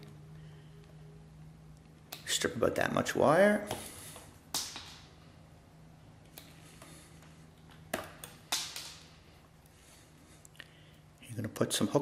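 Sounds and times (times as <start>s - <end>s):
faint low hum: 0.0s - 12.0s
wire strippers clicking and snipping: 4.5s - 5.1s, 7.6s - 9.2s.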